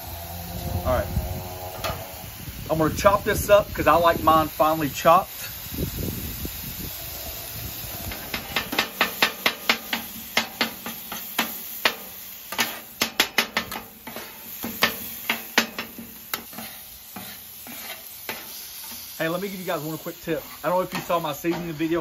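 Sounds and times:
meat sizzling: 0:00.0 - 0:22.0
spatulas clacking on steel griddle: 0:08.1 - 0:19.1, 0:20.6 - 0:22.0.

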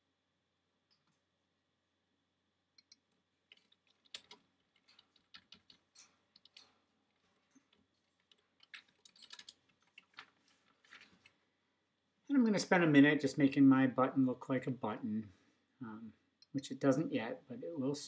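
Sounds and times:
computer keyboard typing: 0:02.8 - 0:06.7.

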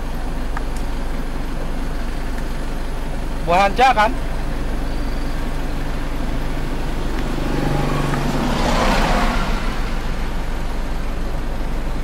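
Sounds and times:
steady low rumble: 0:00.0 - 0:12.0
vehicle engine passing by: 0:03.2 - 0:12.0.

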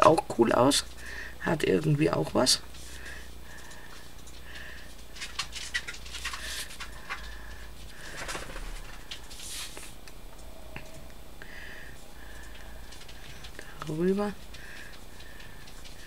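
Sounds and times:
low steady hum: 0:00.0 - 0:16.0
hands rustling card: 0:02.7 - 0:10.0.

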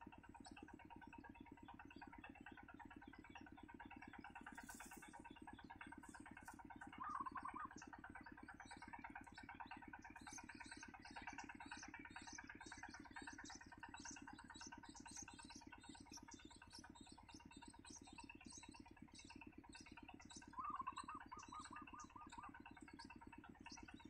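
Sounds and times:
low pulsing hum: 0:00.0 - 0:24.0
nestlings begging calls: 0:00.1 - 0:24.0
wavering bird call: 0:06.0 - 0:08.1, 0:20.5 - 0:23.1.

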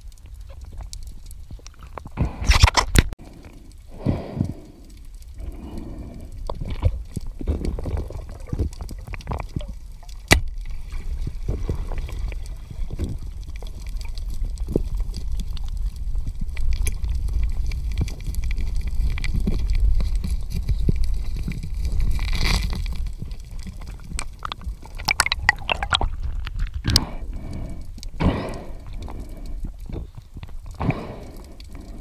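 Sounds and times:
muffled underwater water rumble: 0:00.0 - 0:32.0
underwater clicks and knocks: 0:06.5 - 0:15.8, 0:16.5 - 0:27.1.

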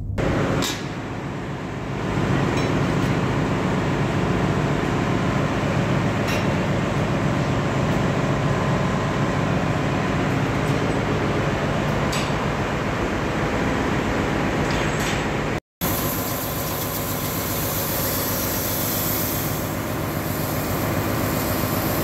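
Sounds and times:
low hum: 0:00.0 - 0:02.6
engine room machinery noise: 0:00.0 - 0:22.0.

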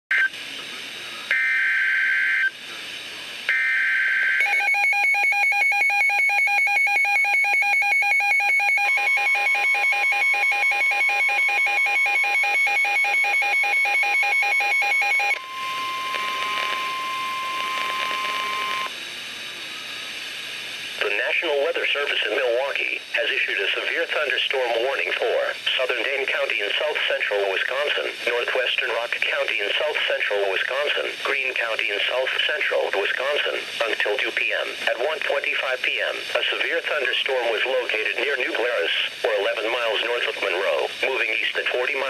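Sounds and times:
steady alarm tone: 0:01.3 - 0:02.6, 0:03.5 - 0:19.0
digital data tone bursts: 0:03.5 - 0:18.9
rapid pulsed alarm beeps: 0:03.5 - 0:18.9.

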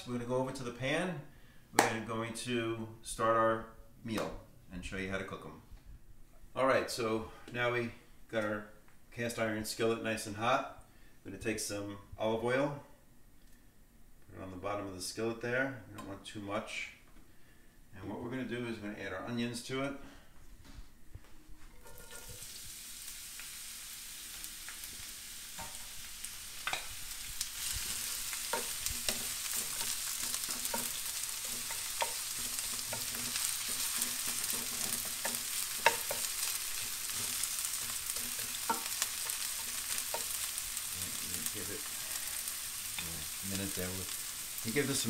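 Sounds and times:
onions sizzling in oil: 0:21.8 - 0:45.0
wooden spatula stirring: 0:26.6 - 0:45.0.

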